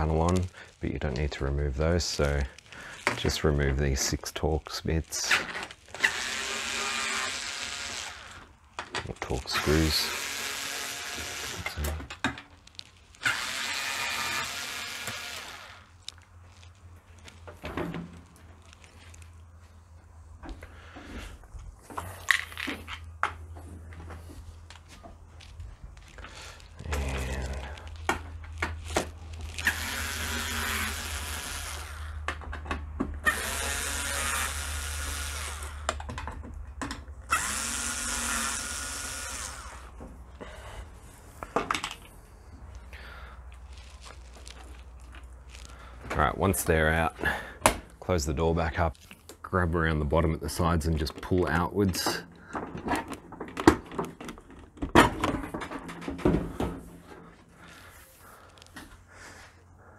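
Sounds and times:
cordless screwdriver running: 5.9s - 8.5s, 9.6s - 11.8s, 13.2s - 15.9s, 29.5s - 32.2s, 33.2s - 36.0s, 37.3s - 39.9s.

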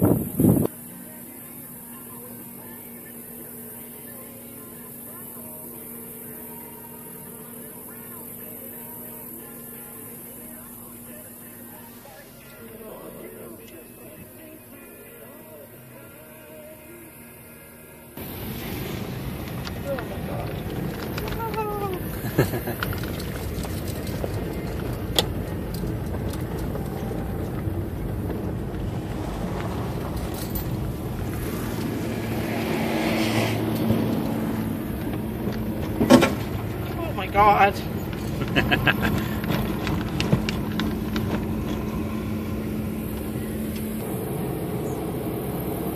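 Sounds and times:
tyres and engine rumbling: 0.0s - 45.9s
gravel clicking: 18.2s - 45.9s.

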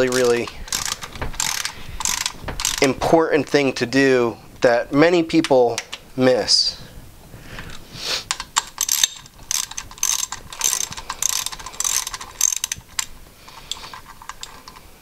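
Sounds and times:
ratchet wrench clicking: 0.0s - 3.0s, 8.3s - 14.8s.

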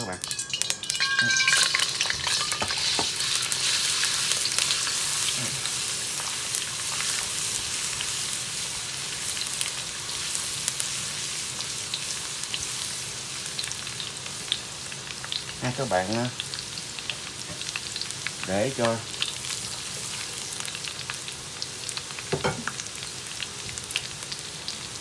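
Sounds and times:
garlic sizzling in hot oil: 0.0s - 25.0s.

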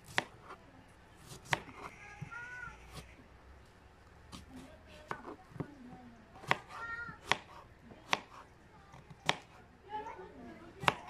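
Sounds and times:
knife cutting potatoes: 0.0s - 0.6s, 1.2s - 3.2s, 4.3s - 9.6s, 10.8s - 11.0s.

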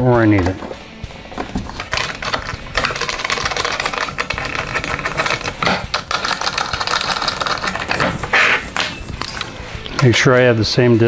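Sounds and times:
screwdriver ratchet clicking: 1.7s - 8.4s.

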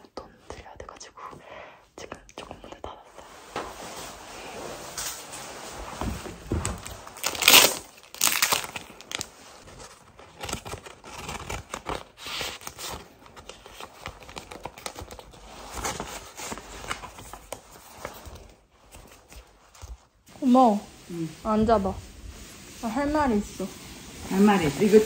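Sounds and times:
paper crinkling and rustling: 3.2s - 25.0s
paper tearing: 7.2s - 9.4s, 10.1s - 15.9s.

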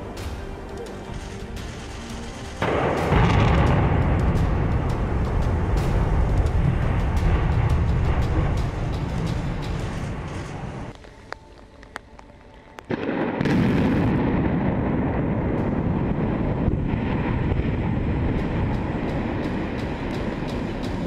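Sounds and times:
deep rumble: 0.0s - 11.0s, 12.9s - 21.0s
sharp cracks: 0.7s - 14.4s
loud explosive blast: 1.6s - 9.0s, 12.9s - 19.3s.

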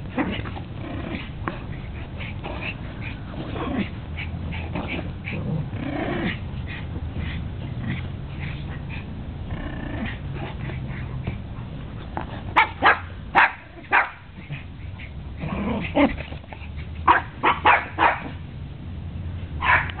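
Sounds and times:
dogs barking: 12.4s - 15.2s, 17.0s - 18.4s, 19.6s - 20.0s.

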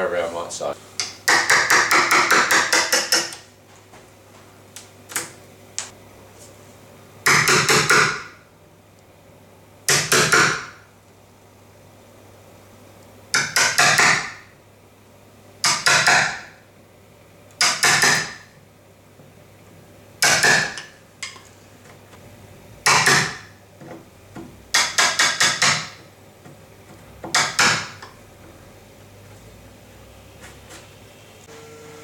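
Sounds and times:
hammer tapping chisel: 22.9s - 28.2s.

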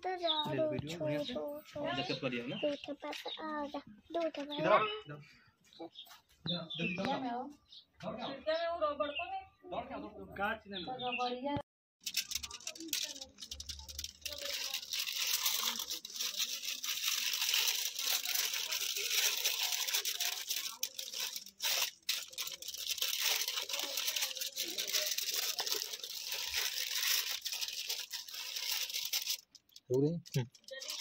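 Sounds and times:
kitchen foil crinkling: 12.0s - 31.0s.

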